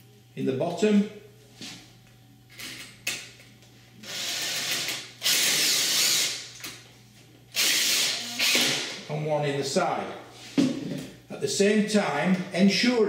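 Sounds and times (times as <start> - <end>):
cordless drill driving screw: 4.0 - 6.4, 7.6 - 8.9.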